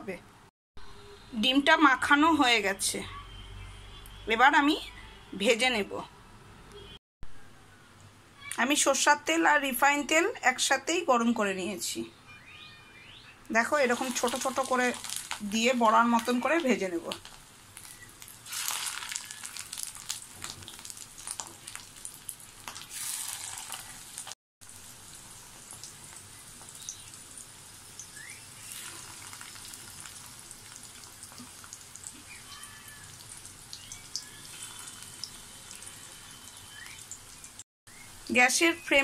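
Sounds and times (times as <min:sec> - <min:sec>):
batter sizzling in hot oil: 0:13.6 - 0:39.0.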